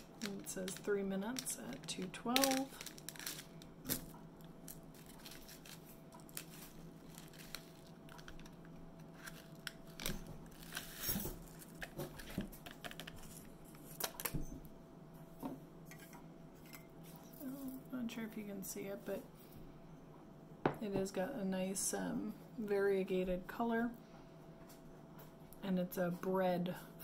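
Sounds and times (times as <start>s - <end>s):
paper packet tearing and crinkling: 0.0s - 14.3s
faint steady hum: 0.0s - 27.0s.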